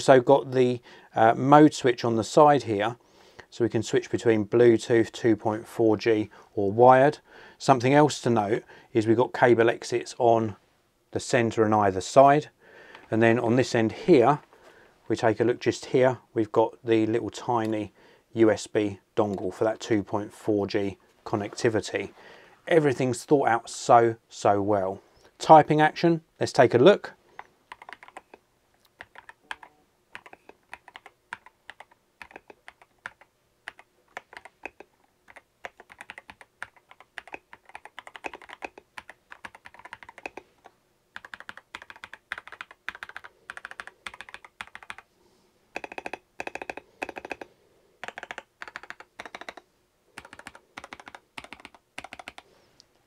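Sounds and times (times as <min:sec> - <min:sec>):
mechanical keyboard typing: 0:27.7 - 0:45.1, 0:45.8 - 0:49.6, 0:50.2 - 0:52.4.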